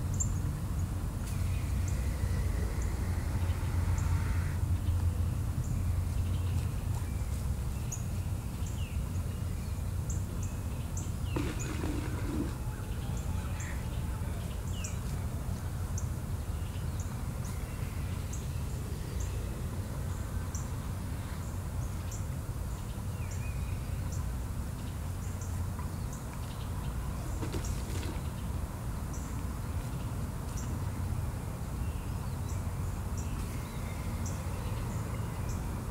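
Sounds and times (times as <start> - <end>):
birds chirping: 0.0 - 31.1
low rumble: 0.9 - 7.3.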